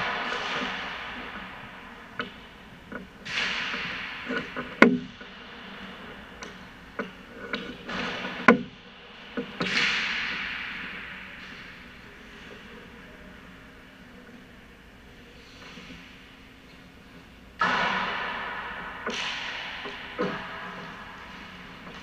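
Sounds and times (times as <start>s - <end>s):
hockey shot cracks: 0.0s - 2.5s, 9.2s - 11.9s, 17.6s - 22.0s.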